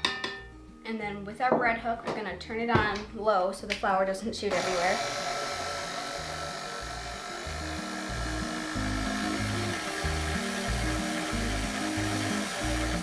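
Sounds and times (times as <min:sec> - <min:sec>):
stand mixer running: 0:04.5 - 0:13.0
background music with bass: 0:06.2 - 0:13.0.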